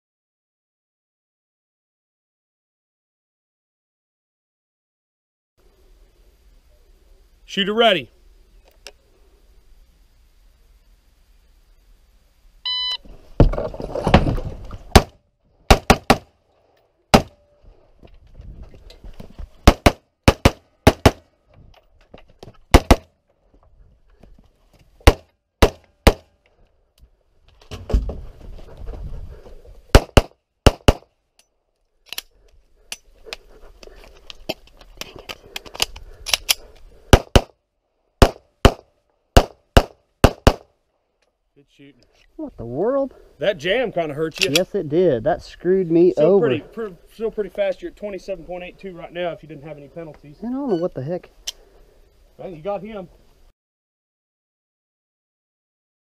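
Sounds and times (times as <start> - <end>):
shot timer beep: 12.7 - 13.0
rustling movement: 13.0 - 14.9, 25.9 - 29.9
pistol gunshots: 14.9 - 16.3, 17.1 - 17.4, 19.6 - 21.2, 22.7 - 23.1, 25.0 - 26.3, 29.9 - 31.1, 37.1 - 37.5, 38.2 - 38.8, 39.4 - 40.7
rifle gunshots: 14.9 - 16.3, 17.1 - 17.4, 19.6 - 21.2, 22.7 - 23.1, 29.9 - 31.0, 37.1 - 37.5, 38.2 - 38.8, 39.4 - 40.7.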